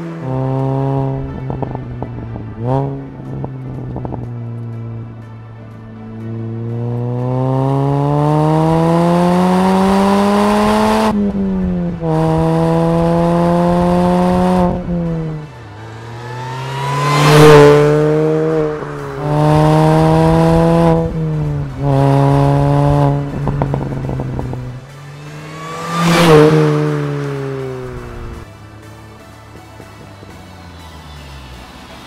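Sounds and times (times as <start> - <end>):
car engine accelerating hard: 0.0 - 32.0
exhaust pops crackling: 18.5 - 24.8.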